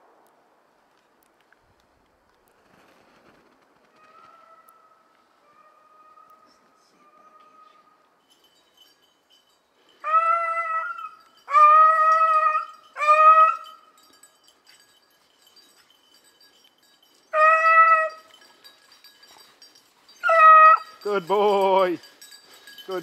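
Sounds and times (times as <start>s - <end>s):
beagle baying: 4.0s - 8.0s, 9.8s - 14.7s, 17.1s - 23.0s.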